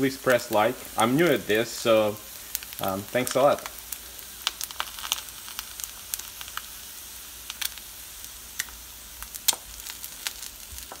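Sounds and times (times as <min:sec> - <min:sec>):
eggs sizzling in a pan: 0:00.0 - 0:11.0
sharp pops and crackles: 0:02.3 - 0:06.8, 0:07.4 - 0:07.9, 0:08.5 - 0:11.0.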